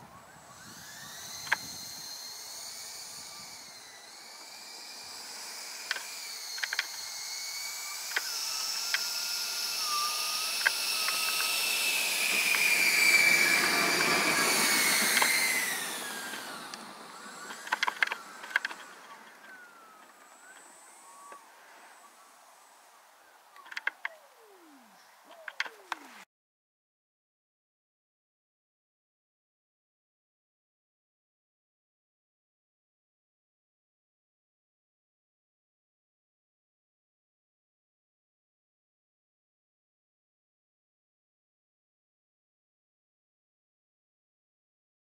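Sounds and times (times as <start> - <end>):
electric ducted fan whining: 0.0 - 26.3
sharp clicks: 5.9 - 7.0, 17.5 - 19.4, 23.6 - 24.2, 25.3 - 26.1.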